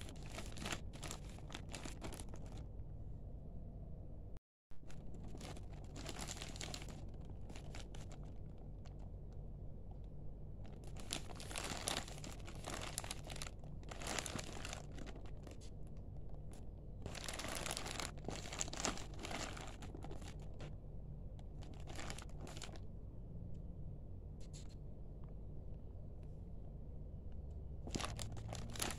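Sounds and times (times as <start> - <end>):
plastic film crinkling: 0.0 - 2.7, 4.8 - 9.1, 10.6 - 15.8, 17.0 - 20.7, 21.4 - 22.8, 27.8 - 28.9.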